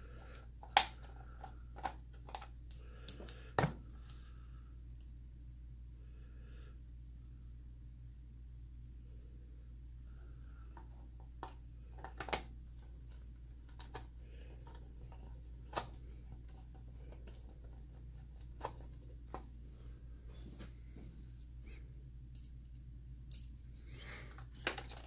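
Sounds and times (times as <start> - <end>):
parts being handled: 0.0 - 3.9, 10.6 - 25.0
low steady hum: 0.0 - 25.0.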